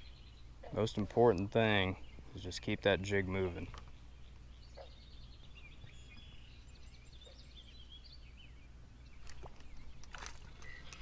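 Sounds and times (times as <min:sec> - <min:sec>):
low outdoor hum: 0:00.0 - 0:11.0
small bird chirping: 0:03.6 - 0:11.0.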